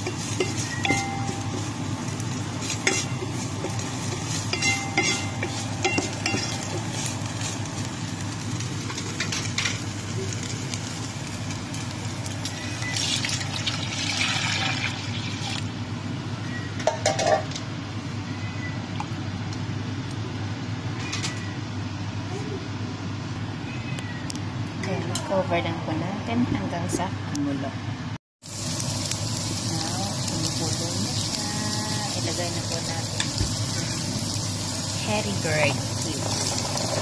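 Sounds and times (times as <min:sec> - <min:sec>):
spatula stirring meat in pot: 0:00.0 - 0:07.7
water poured into hot pot hissing: 0:12.9 - 0:15.6.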